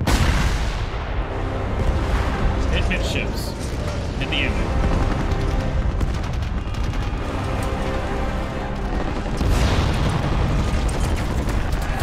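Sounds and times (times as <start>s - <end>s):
big blast: 0.0s - 2.6s
explosions rumbling: 0.0s - 7.6s, 8.8s - 12.0s
dramatic orchestral music: 0.0s - 12.0s.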